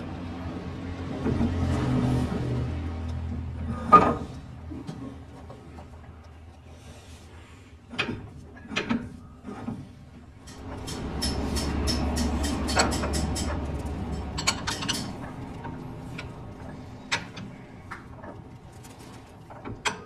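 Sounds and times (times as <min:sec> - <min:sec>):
low machine hum: 0:10.3 - 0:19.7
metal parts clattering: 0:10.5 - 0:15.7.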